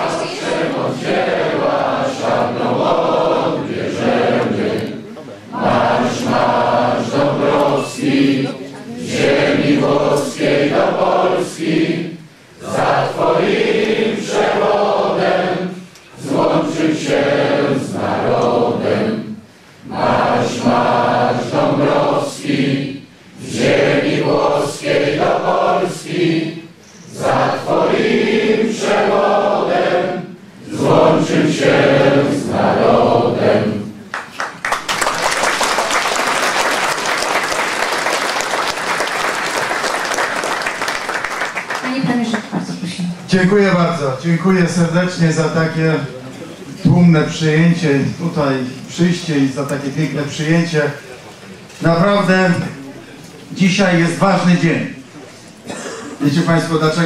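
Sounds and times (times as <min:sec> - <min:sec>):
crowd singing in unison: 0:00.0 - 0:34.1
crowd applause: 0:34.1 - 0:42.8.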